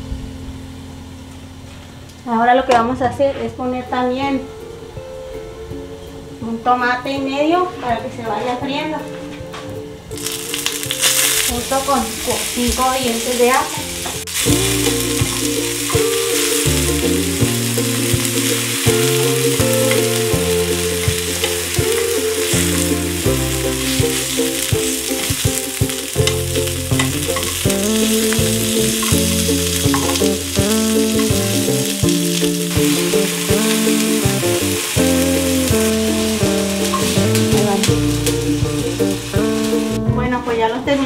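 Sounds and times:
background music with bass: 0.0 - 2.3, 3.0 - 41.0
vegetables sizzling in skillet: 10.1 - 40.8
metal tongs turning food: 10.2 - 39.8.

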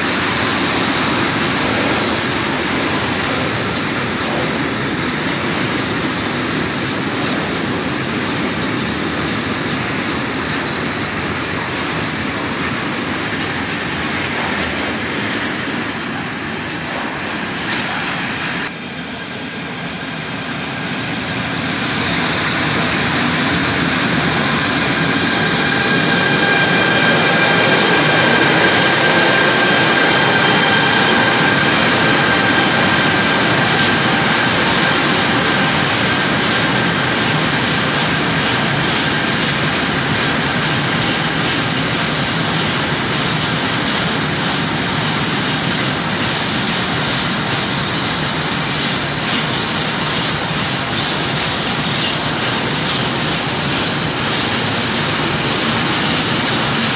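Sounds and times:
high wheel squealing: 0.0 - 6.2, 16.9 - 18.7, 39.2 - 54.2
freight train wheels rumbling: 0.0 - 56.9.

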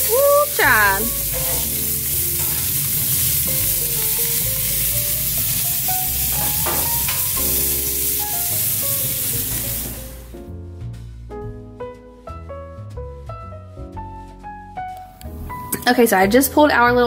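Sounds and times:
burger patties sizzling on a grill: 0.0 - 10.4
background music with bass line: 0.0 - 17.0.

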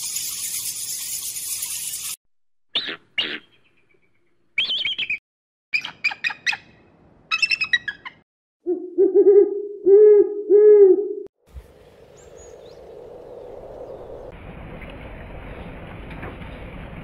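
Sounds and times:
owl hooting: 8.7 - 11.3.

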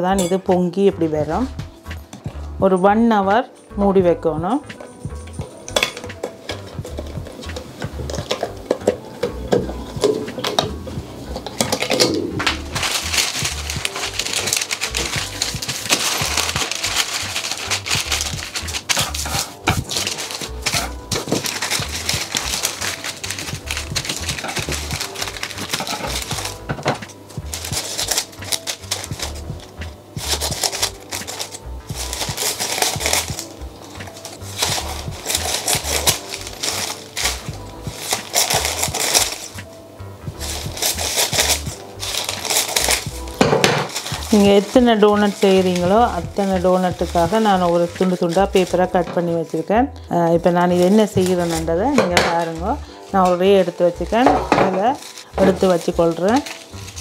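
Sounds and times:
background music: 0.0 - 57.0
parchment paper rustling and crinkling: 4.7 - 57.0
scissors snipping paper: 11.5 - 39.6, 40.4 - 49.6, 50.6 - 54.0, 54.6 - 57.0.

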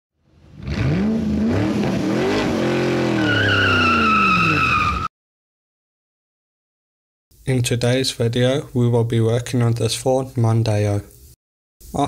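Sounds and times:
car engine revving: 0.3 - 4.9
tyres squealing: 2.9 - 5.1.

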